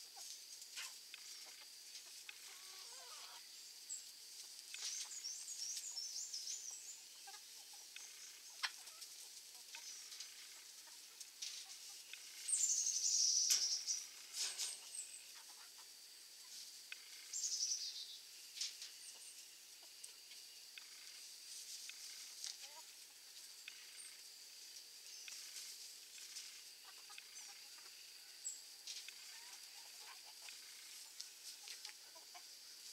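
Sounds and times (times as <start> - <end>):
chickens pecking and scratching: 0.2 - 3.4, 4.3 - 5.9, 6.7 - 12.6, 13.5 - 17.0, 21.1 - 23.9, 24.6 - 27.9, 28.8 - 32.9
bird chirps and trills: 12.1 - 15.4, 17.2 - 18.2.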